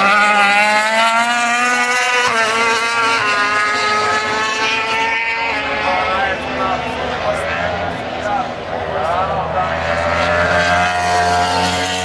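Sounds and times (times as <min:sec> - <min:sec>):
racing motorcycle engine wailing: 0:00.0 - 0:12.0.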